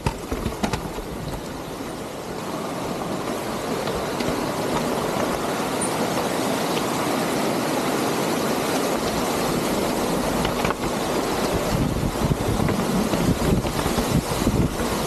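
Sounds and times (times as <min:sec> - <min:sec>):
bike rattling over roots: 0:00.0 - 0:15.0
bike tyres rumbling on dirt: 0:00.0 - 0:15.0.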